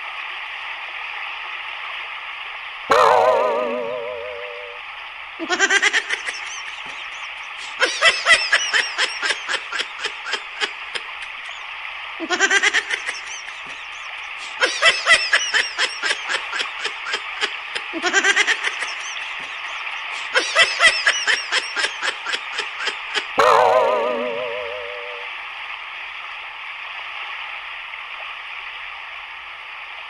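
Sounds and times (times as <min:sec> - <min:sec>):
steady hiss: 0:03.6 - 0:23.4
woman laughing hard: 0:05.4 - 0:11.6, 0:12.2 - 0:23.4.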